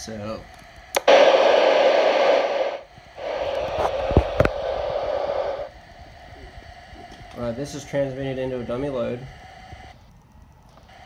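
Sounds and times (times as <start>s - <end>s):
radio static hiss: 1.0s - 9.3s.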